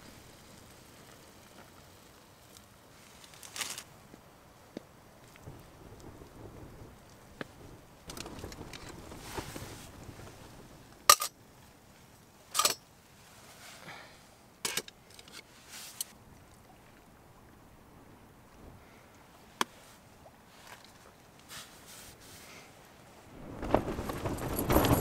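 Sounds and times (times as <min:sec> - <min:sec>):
rustling: 0:02.5 - 0:03.9, 0:08.1 - 0:11.2, 0:15.2 - 0:16.2, 0:19.7 - 0:25.0
metal pots clinking together: 0:11.1 - 0:11.3.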